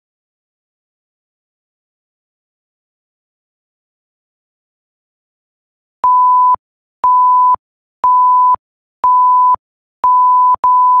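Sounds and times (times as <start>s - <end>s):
timer warning beeps: 6.0s - 11.0s.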